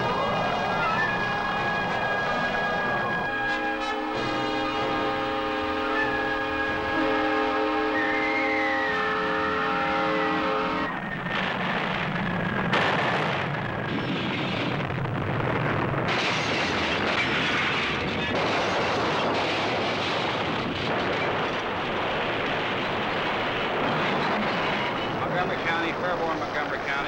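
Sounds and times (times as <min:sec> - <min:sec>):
locomotive air horn: 0:00.7 - 0:11.0
roar of tornado wind: 0:09.4 - 0:27.0.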